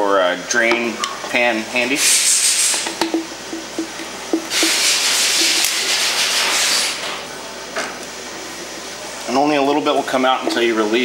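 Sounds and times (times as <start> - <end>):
coolant hissing and trickling: 1.3 - 11.0.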